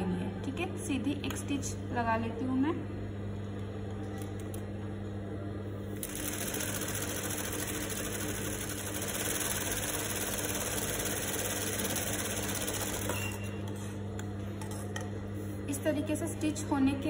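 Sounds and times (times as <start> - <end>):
sewing machine stitching: 6.0 - 13.4.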